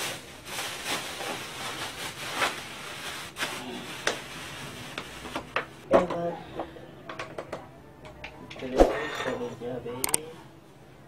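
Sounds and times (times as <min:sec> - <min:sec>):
plastic bags rustling: 0:00.0 - 0:05.9.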